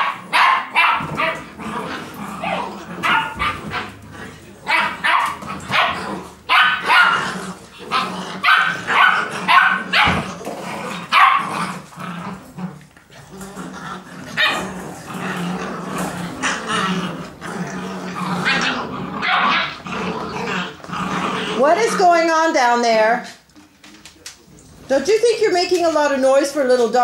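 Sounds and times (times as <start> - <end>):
puppies barking: 0.0 - 12.5, 13.6 - 22.4.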